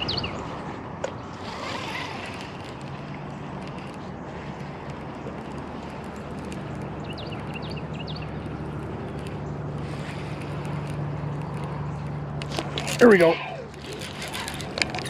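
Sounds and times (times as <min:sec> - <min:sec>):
steady low hum: 0:00.0 - 0:15.0
faint scattered ticks: 0:02.4 - 0:13.0.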